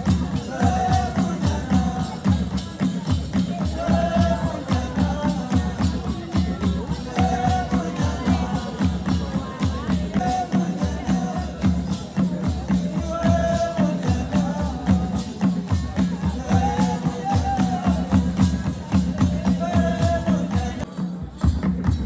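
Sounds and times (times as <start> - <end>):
person singing: 0.0 - 20.9
steady drumbeat: 0.0 - 22.0.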